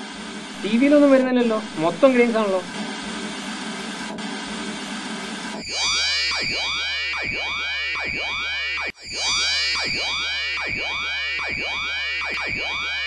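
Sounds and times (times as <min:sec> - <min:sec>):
television static hiss: 0:00.0 - 0:04.0
low hum: 0:00.0 - 0:08.2
electronic tone with pitch sweeps: 0:00.0 - 0:13.0.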